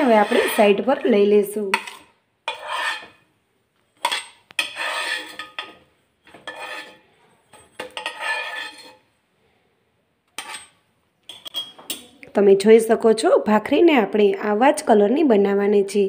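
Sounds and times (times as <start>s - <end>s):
metal spatula scraping a griddle: 0.0s - 3.3s, 4.0s - 9.1s, 10.4s - 10.8s.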